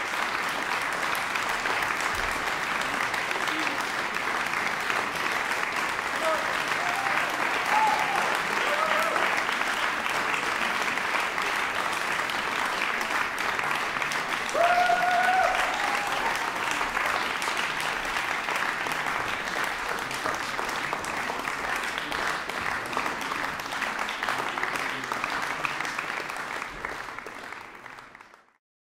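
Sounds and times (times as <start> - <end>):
audience applauding: 0.0 - 28.6.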